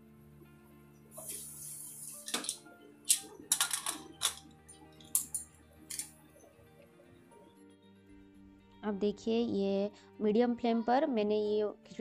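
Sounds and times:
background music: 0:00.0 - 0:12.0
metal lid clicks and clanks: 0:02.3 - 0:06.1.

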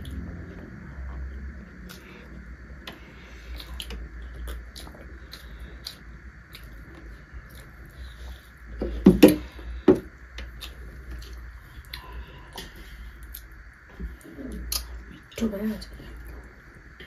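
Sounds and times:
steady low hum: 0:00.0 - 0:17.0
mouth clicks and smacks: 0:03.6 - 0:07.8.

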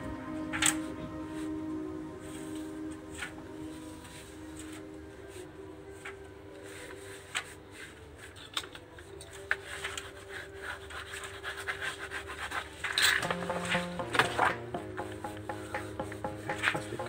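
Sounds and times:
hands rubbing on cardboard: 0:09.7 - 0:13.6
sharp taps: 0:13.2 - 0:17.0.

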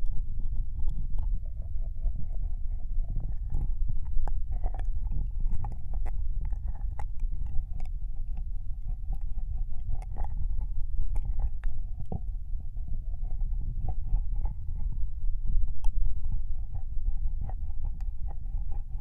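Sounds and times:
low rumble: 0:00.0 - 0:19.0.

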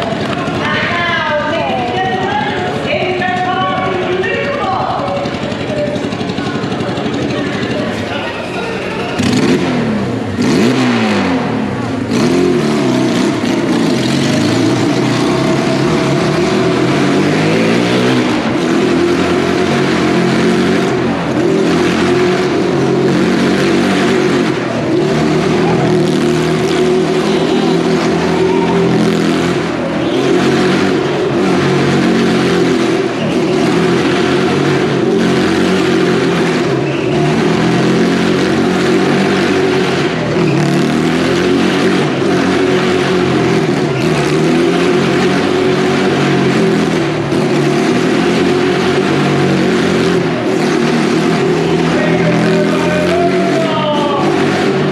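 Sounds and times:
car engine running hard: 0:00.0 - 0:54.9.

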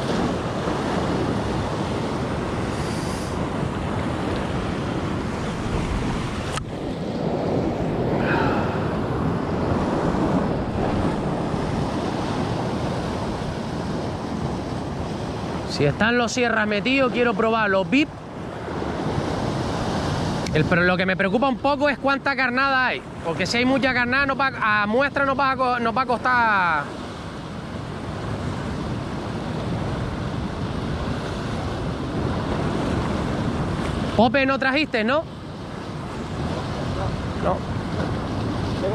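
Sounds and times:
wind buffeting microphone: 0:00.0 - 0:16.1, 0:26.9 - 0:34.2
surf washing onto shore: 0:00.0 - 0:38.9.

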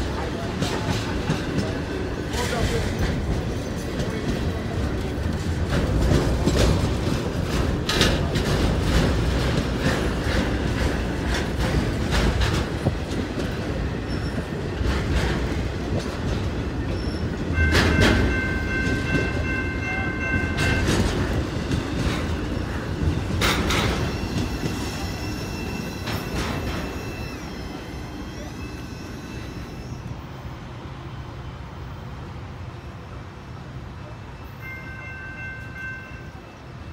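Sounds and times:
train wheels rumbling on rail: 0:00.0 - 0:36.9
sharp clacks of rail: 0:00.1 - 0:27.4
high-pitched wheel squeal: 0:24.0 - 0:30.4.

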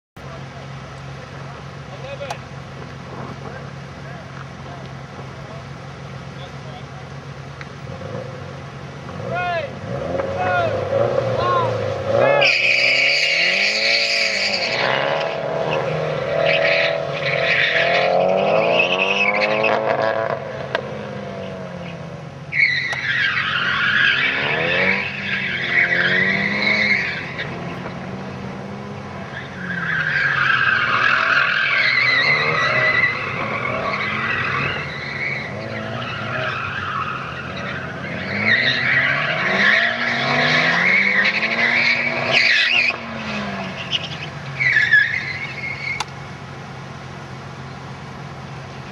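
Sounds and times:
car engine revving: 0:00.2 - 0:48.9
tyres squealing: 0:09.2 - 0:19.8, 0:21.8 - 0:28.0, 0:29.0 - 0:46.1.

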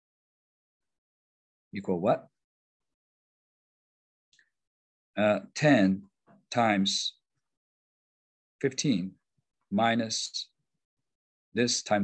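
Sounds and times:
man speaking: 0:01.8 - 0:02.4, 0:05.2 - 0:07.2, 0:09.7 - 0:10.6, 0:11.6 - 0:12.0.

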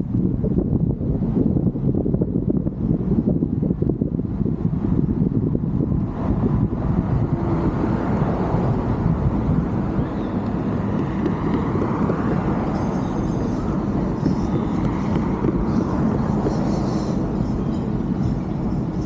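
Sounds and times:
car road and wind noise: 0:00.0 - 0:19.0.

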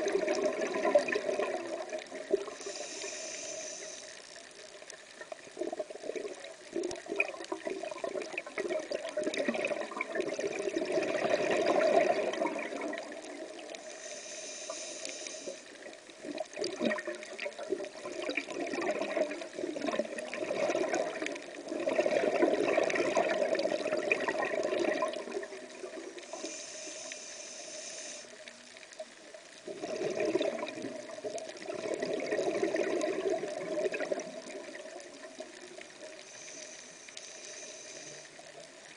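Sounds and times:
bubbling exhalation underwater: 0:00.0 - 0:02.6, 0:05.6 - 0:13.5, 0:16.6 - 0:26.0, 0:29.6 - 0:35.0
regulator inhalation hiss: 0:02.4 - 0:04.4, 0:13.7 - 0:15.9, 0:26.2 - 0:28.5, 0:36.0 - 0:38.6.

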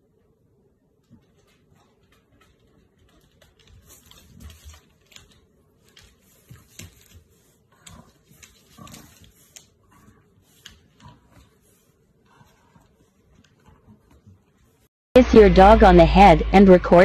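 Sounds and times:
dog claws clicking on tiles: 0:01.1 - 0:14.7.

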